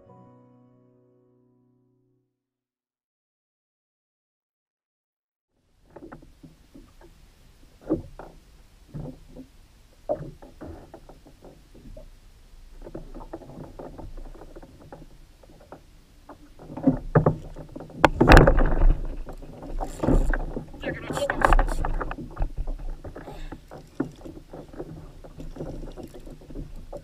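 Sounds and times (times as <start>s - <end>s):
fish splashing: 17.4s - 27.0s.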